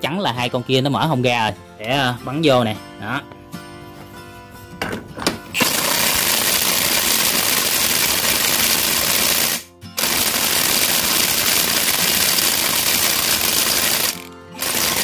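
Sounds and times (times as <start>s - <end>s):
impact wrench hammering: 4.8s - 15.0s.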